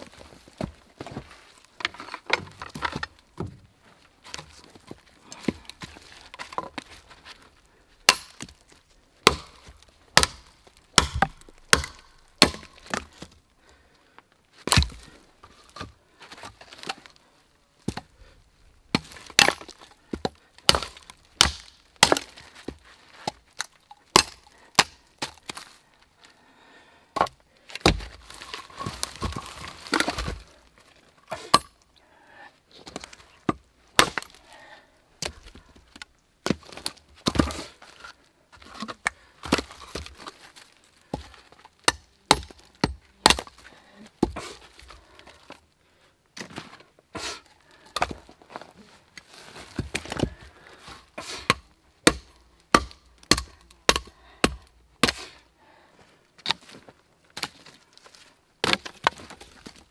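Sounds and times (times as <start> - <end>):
machete chopping wood: 8.1 - 8.6, 9.2 - 13.1, 14.7 - 15.1, 18.9 - 22.4, 24.1 - 25.6, 27.2 - 28.2, 31.3 - 31.8, 33.0 - 34.4, 36.4 - 37.7, 41.8 - 43.6, 44.2 - 44.6, 51.2 - 55.4.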